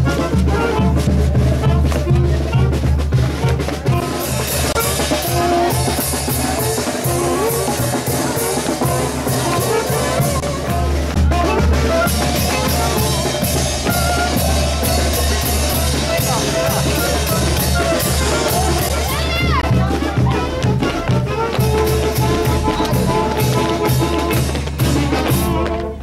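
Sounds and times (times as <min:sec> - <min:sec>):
bass drum beat: 0:00.0 - 0:26.0
brass band dance tune: 0:00.0 - 0:26.0.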